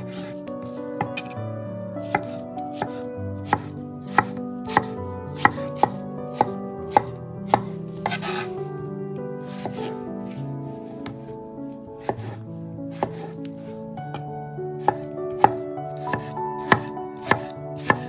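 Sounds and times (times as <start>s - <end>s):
knife chopping on wooden board: 0.0s - 1.4s, 2.0s - 8.5s, 9.5s - 9.9s, 12.0s - 13.4s, 14.8s - 18.0s.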